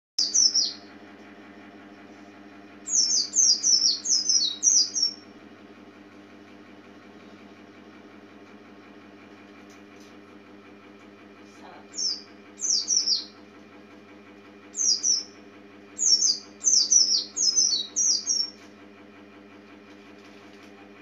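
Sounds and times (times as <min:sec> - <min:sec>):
bird singing high falling notes: 0:00.2 - 0:00.9, 0:02.9 - 0:05.2, 0:12.0 - 0:13.4, 0:14.8 - 0:15.4, 0:16.0 - 0:18.6
steady low hum: 0:00.2 - 0:21.0.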